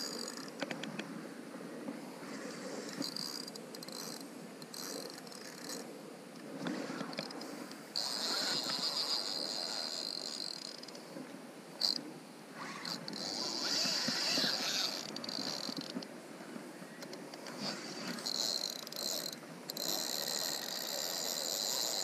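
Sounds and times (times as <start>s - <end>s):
fishing reel drag buzzing: 0.0s - 0.6s, 2.4s - 5.9s, 7.1s - 11.0s, 11.8s - 12.0s, 12.7s - 16.0s, 17.6s - 22.0s
wind: 0.0s - 22.0s.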